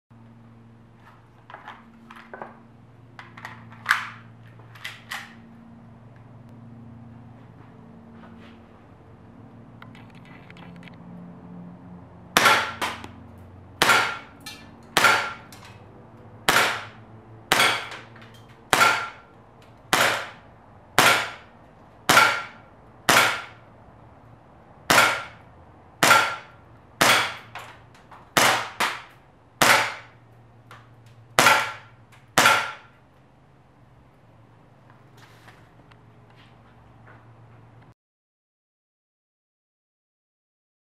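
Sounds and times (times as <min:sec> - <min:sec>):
airsoft pistol shots: 0:12.4 - 0:13.0, 0:13.8 - 0:14.3, 0:15.0 - 0:15.5, 0:16.5 - 0:18.0, 0:18.7 - 0:19.2, 0:19.9 - 0:20.4, 0:21.0 - 0:21.5, 0:22.1 - 0:23.6, 0:24.9 - 0:25.4, 0:26.0 - 0:27.5, 0:28.4 - 0:30.2, 0:31.4 - 0:32.9.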